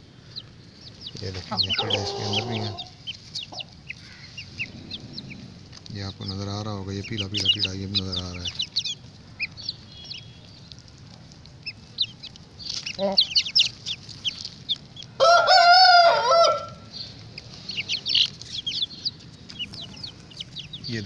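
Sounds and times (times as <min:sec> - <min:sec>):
chicks peeping: 0:00.0 - 0:21.0
chicken clucking: 0:00.3 - 0:21.0
rooster crowing: 0:01.5 - 0:03.0, 0:15.2 - 0:16.9.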